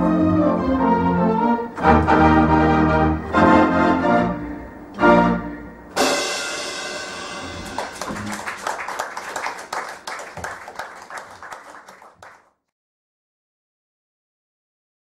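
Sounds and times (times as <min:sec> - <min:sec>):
organ chord ringing: 0:00.0 - 0:10.4
audience applauding: 0:07.4 - 0:12.5.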